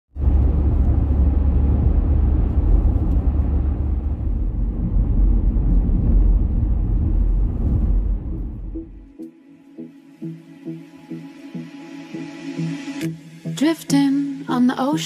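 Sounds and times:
car driving low rumble: 0:00.1 - 0:09.1.

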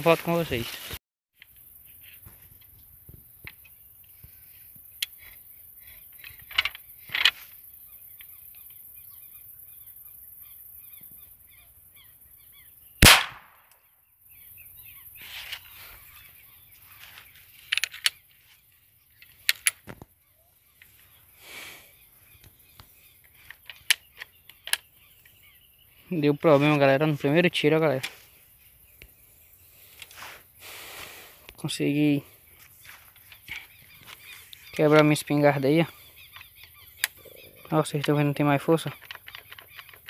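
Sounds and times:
man speaking: 0:00.0 - 0:00.7, 0:26.1 - 0:28.2
birds chirping: 0:01.4 - 0:40.0
shotgun shot: 0:13.0 - 0:13.6.

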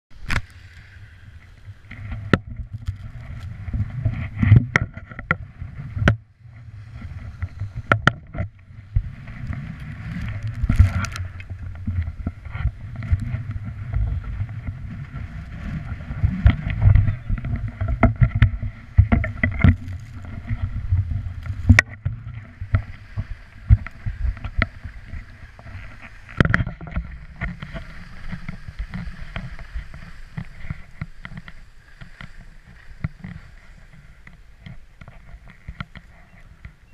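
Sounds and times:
wind rumbling on microphone: 0:00.1 - 0:36.9.

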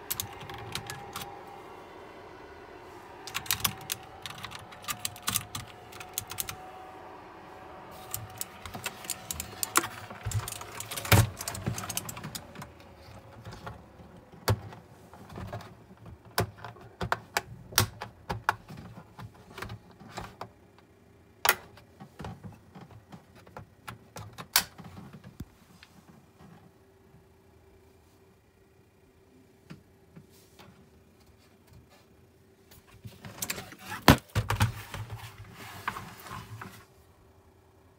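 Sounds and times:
keyboard handling clicks and knocks: 0:00.0 - 0:01.4, 0:03.3 - 0:06.6, 0:08.0 - 0:20.6
mechanical keyboard key clicks: 0:03.3 - 0:06.6.

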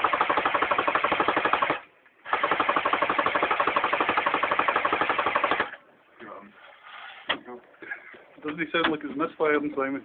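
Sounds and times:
airsoft gun firing full auto: 0:00.0 - 0:05.8.

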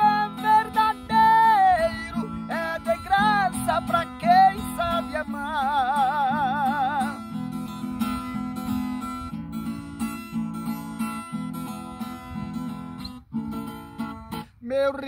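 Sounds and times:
man singing with vibrato: 0:00.0 - 0:07.8, 0:14.4 - 0:15.0
acoustic guitar strumming: 0:00.0 - 0:15.0.

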